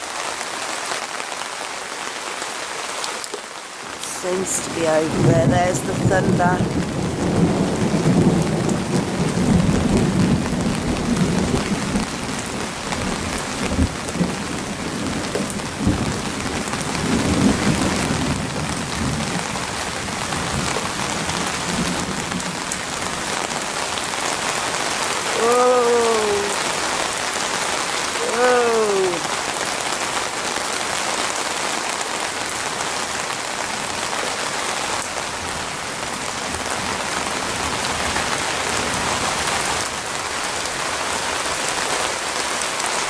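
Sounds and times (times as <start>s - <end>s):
heavy rain pouring: 0.0s - 43.0s
low rumble of thunder: 5.1s - 23.2s.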